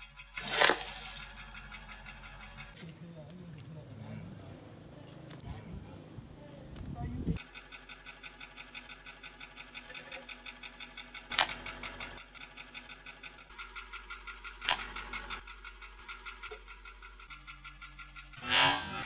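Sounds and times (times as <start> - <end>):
toothpaste tubes bursting: 0.4 - 1.3
bright high ringing tone: 11.3 - 12.2, 14.7 - 15.4, 18.6 - 19.0.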